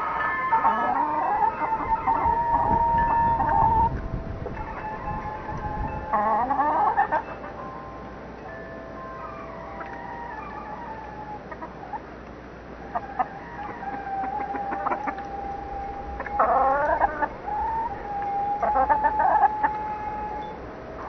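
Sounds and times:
rooster crowing: 0.0s - 3.9s, 12.9s - 20.6s
chickens clucking: 0.0s - 7.6s, 9.2s - 21.0s.

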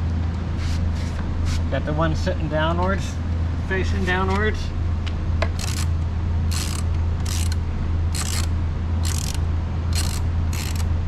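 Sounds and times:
steady low hum: 0.0s - 11.0s
ratchet wrench clicking: 5.6s - 5.9s, 6.5s - 10.9s.

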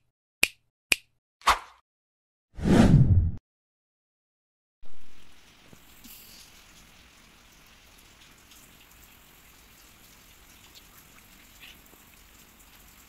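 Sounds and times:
faint steady rain: 4.8s - 13.0s
water dripping: 4.9s - 13.0s.

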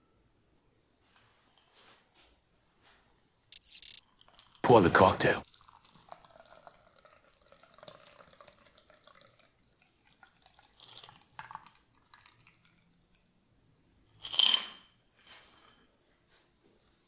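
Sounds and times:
liquid pouring into glass: 5.4s - 12.8s.

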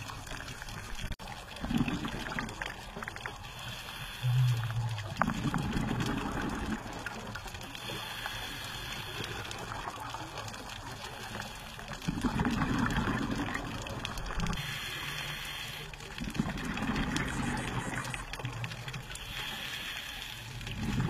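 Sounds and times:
exhaled bubbles bursting: 0.0s - 3.5s, 4.3s - 7.8s, 12.0s - 14.6s, 16.1s - 19.1s, 20.6s - 21.0s
regulator breathing hiss: 3.4s - 4.8s, 7.7s - 9.6s, 14.6s - 16.1s, 19.1s - 20.6s.

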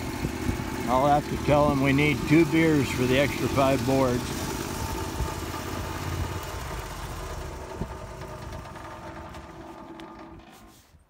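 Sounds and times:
sawmill engine running: 0.0s - 11.0s.

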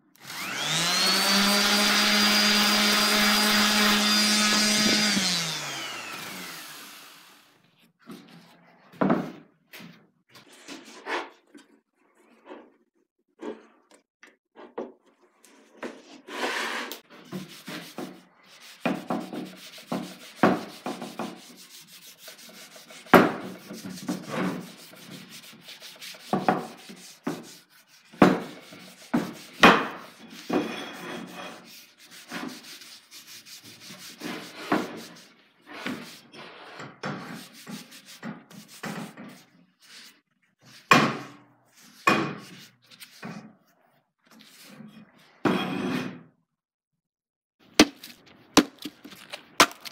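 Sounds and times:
cloth rag wiping wood: 17.4s - 30.5s, 31.3s - 35.3s, 37.4s - 40.9s.

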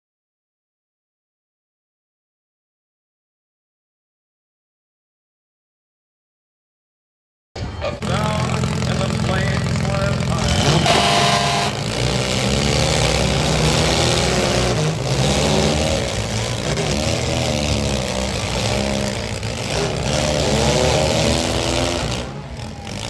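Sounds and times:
car engines revving hard: 7.8s - 23.0s.

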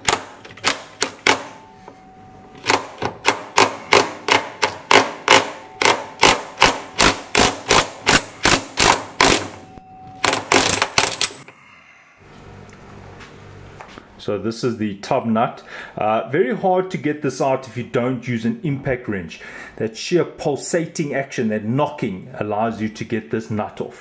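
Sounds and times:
impact wrench hammering: 0.0s - 1.6s, 2.6s - 11.5s.

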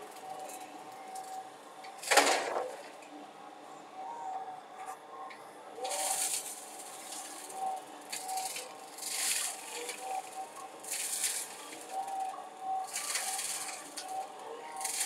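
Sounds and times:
faint steady whine: 0.0s - 15.0s
brush mower cutting brush: 5.8s - 7.5s, 8.1s - 11.9s.

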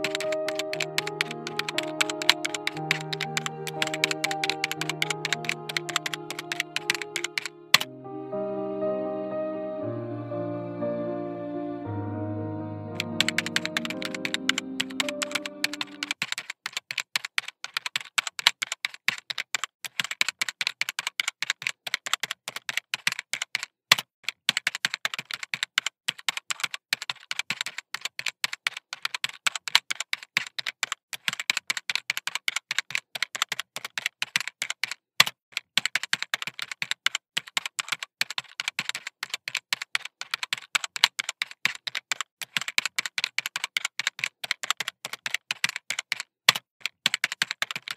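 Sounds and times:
background music: 0.0s - 16.1s.

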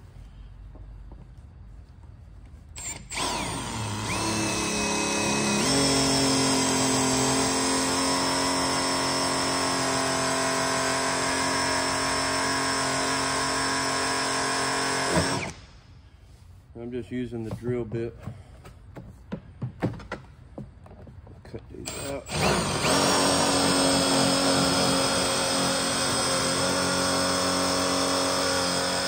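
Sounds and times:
cordless drill into plastic: 2.8s - 15.7s, 21.8s - 29.0s.

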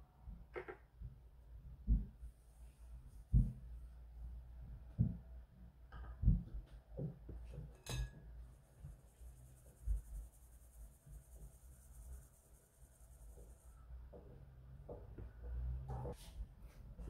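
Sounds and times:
sieve clinking against glass bowl: 7.8s - 8.2s.

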